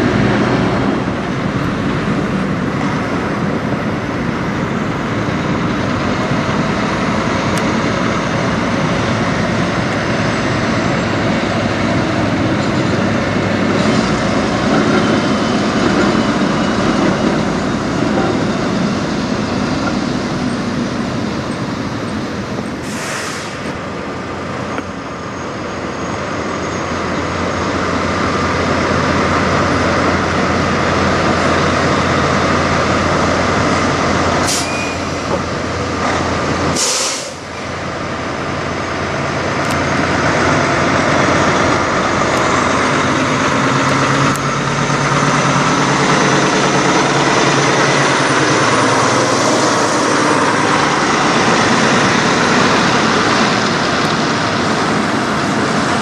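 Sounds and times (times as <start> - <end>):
diesel truck engines running: 0.0 - 56.0
air brake hisses: 22.8 - 23.8, 34.4 - 35.2, 36.7 - 37.5.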